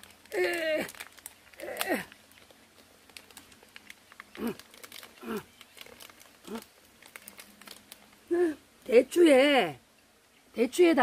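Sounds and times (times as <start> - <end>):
snack wrapper crinkling: 0.0 - 8.3.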